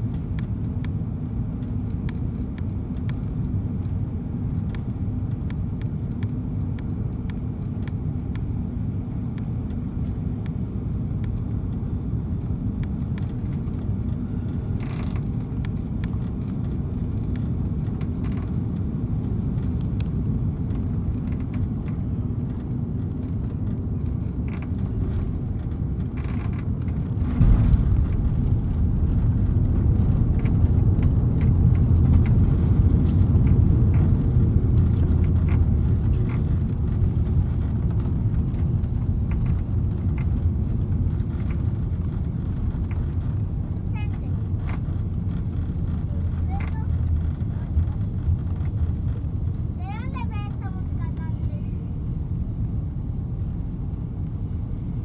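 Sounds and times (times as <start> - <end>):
airliner cabin engine rumble: 0.0 - 55.0
jet touching down and rolling: 9.5 - 55.0.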